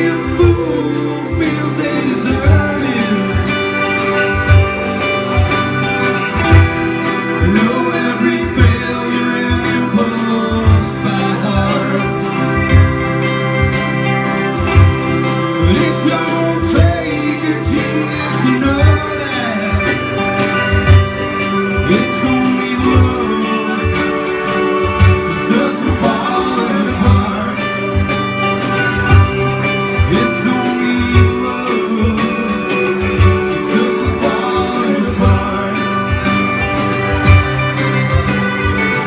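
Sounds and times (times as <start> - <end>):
person singing lead vocal: 0.0 - 5.0, 5.8 - 38.0
drum kit beat: 0.0 - 39.0
electric guitar: 0.0 - 39.0
piano accordion: 0.0 - 39.0
strummed acoustic guitar: 0.0 - 39.0.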